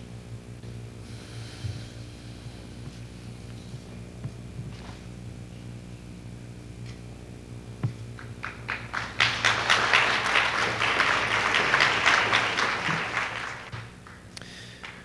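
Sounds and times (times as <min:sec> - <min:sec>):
steady low hum: 0:00.0 - 0:15.0
audience applauding: 0:08.2 - 0:14.2, 0:14.8 - 0:15.0.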